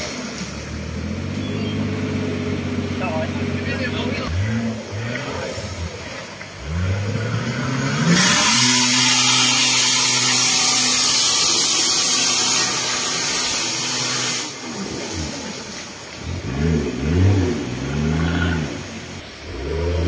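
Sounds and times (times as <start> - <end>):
off-road vehicle engine revving: 0.0 - 20.0
loud hiss: 8.2 - 16.1.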